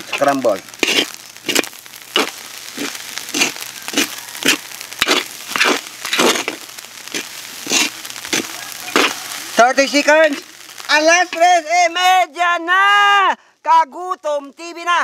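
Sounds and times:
metal spatulas scraping a wok: 0.8 - 1.6, 2.2 - 6.6, 7.6 - 9.2.

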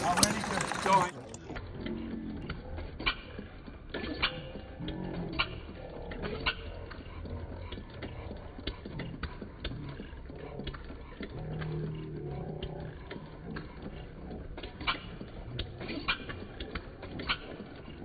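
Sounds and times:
model steam engine running: 0.0 - 18.0.

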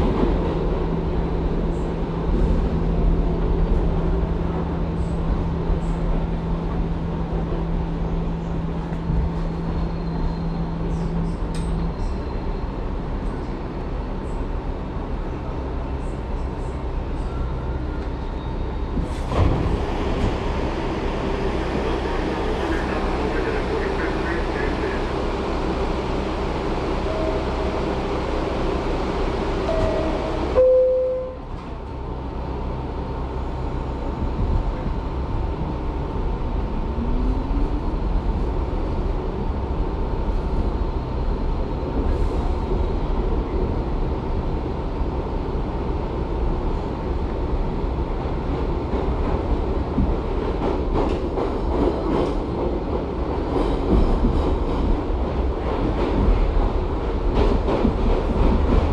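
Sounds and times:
subway car rumble: 0.0 - 58.9
short tones: 29.7 - 31.4.

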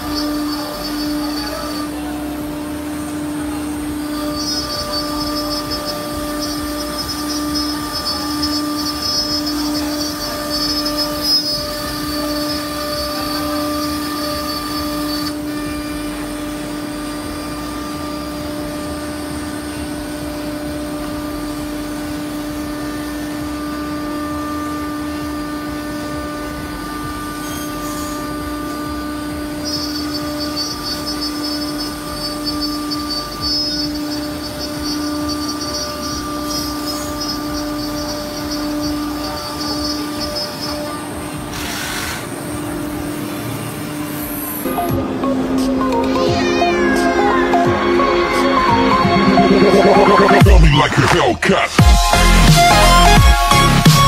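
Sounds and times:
hissing cutting noise: 0.0 - 54.0
router spindle whining: 0.0 - 54.0.

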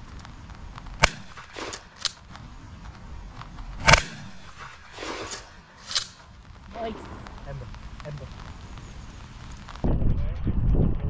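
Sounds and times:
shotgun shots: 1.0 - 2.3, 3.8 - 8.5.

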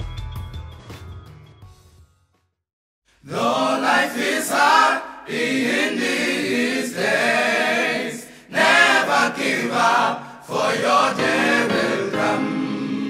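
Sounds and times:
choir singing unaccompanied: 3.2 - 13.0.

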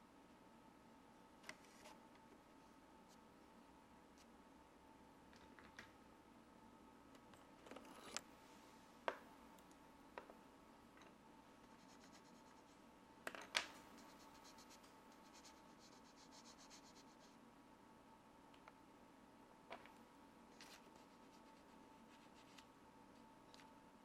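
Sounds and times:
pencil scratching on paper: 11.6 - 12.8, 13.9 - 17.4.

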